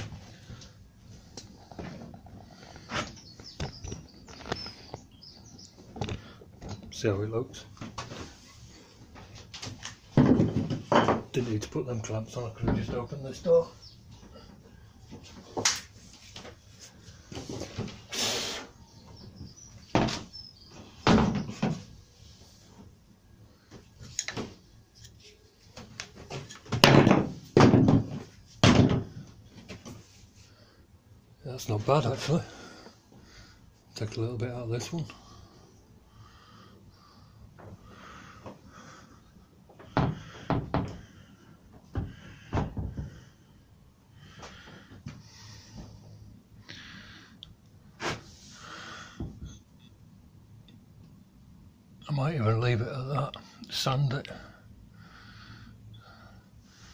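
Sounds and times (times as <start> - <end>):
wardrobe doors knocking shut: 26.7 - 29.2.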